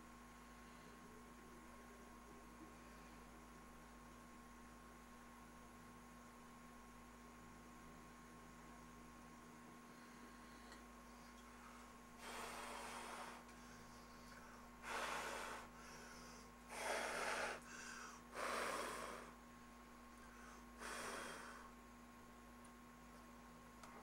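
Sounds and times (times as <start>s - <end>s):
faint steady hum: 0.0s - 24.0s
man breathing heavily: 11.6s - 19.4s, 20.2s - 21.8s.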